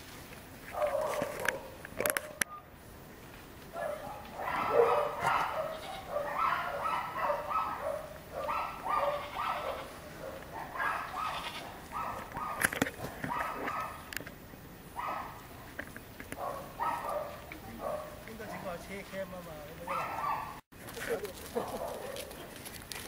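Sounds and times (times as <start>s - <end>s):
goats bleating: 5.7s - 6.1s, 9.0s - 10.1s, 11.1s - 11.8s.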